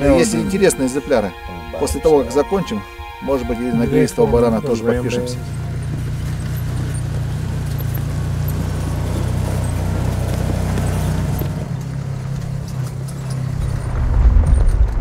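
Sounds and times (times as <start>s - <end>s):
utility vehicle engine running: 0.0s - 15.0s.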